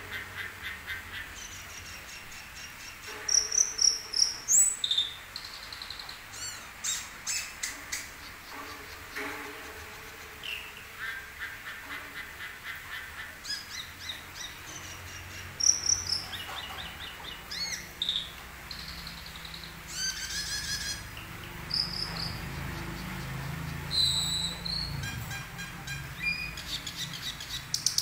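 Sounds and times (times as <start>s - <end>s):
starling singing: 10.1s - 28.0s.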